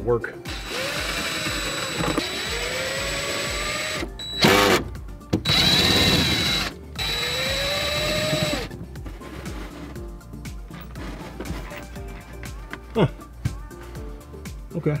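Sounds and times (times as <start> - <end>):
power drill running: 0.5 - 4.8, 5.4 - 8.7.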